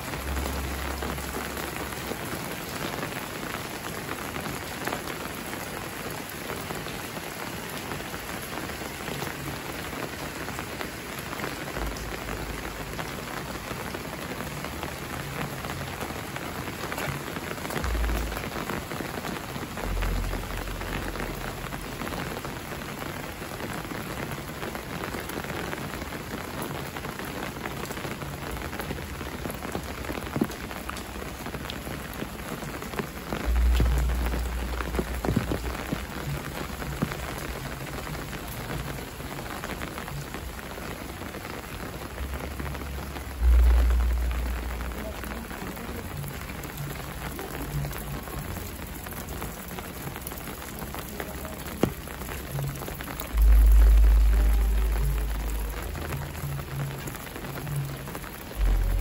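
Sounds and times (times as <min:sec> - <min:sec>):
steady rain on pavement: 0:00.0 - 0:59.0
water drips: 0:28.4 - 0:41.1
deep low rumble: 0:33.4 - 0:37.2, 0:42.2 - 0:48.7, 0:52.6 - 0:57.0, 0:58.5 - 0:59.0.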